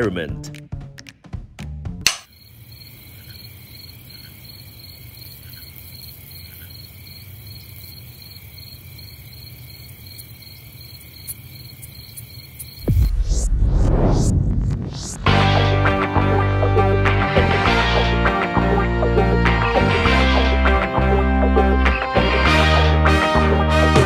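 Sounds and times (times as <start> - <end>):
crickets chirping: 2.2 - 13.2.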